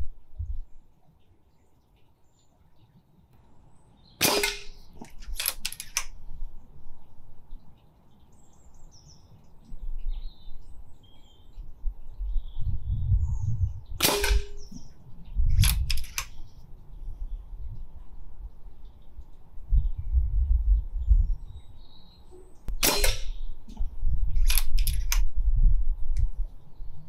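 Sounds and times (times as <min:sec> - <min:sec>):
wind rumble on microphone: 0:00.0 - 0:00.9, 0:08.4 - 0:27.0
birds chirping faintly: 0:00.1 - 0:24.5
quick mechanical clicks: 0:04.2 - 0:06.2, 0:15.6 - 0:16.4, 0:24.4 - 0:25.3
silenced air rifle shots: 0:04.2 - 0:06.2, 0:14.0 - 0:14.9, 0:15.5 - 0:16.4, 0:22.7 - 0:25.3.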